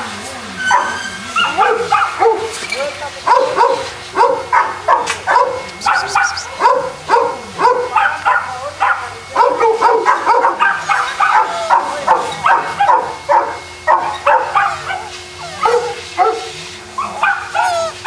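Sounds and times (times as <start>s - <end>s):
dog barking and yipping: 0.6s - 18.0s.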